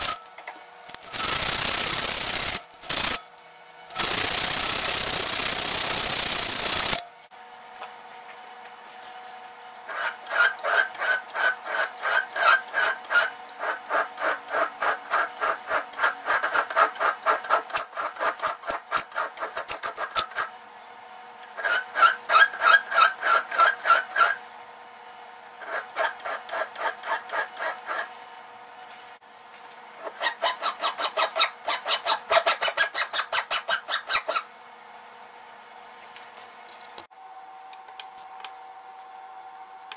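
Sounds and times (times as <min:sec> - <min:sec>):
sandpaper rasping on metal: 0:09.9 - 0:20.5, 0:21.6 - 0:24.4, 0:25.6 - 0:28.1.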